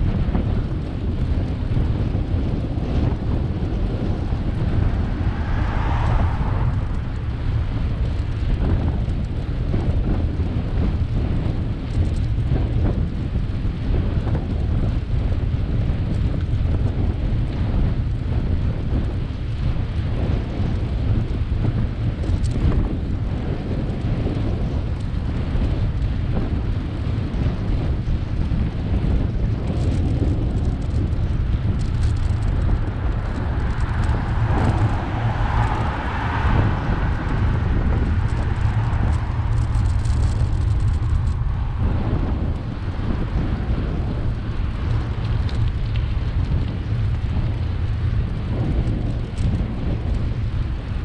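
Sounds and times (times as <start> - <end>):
wind buffeting microphone: 0.0 - 51.0
car passing: 3.4 - 9.4, 31.8 - 45.4.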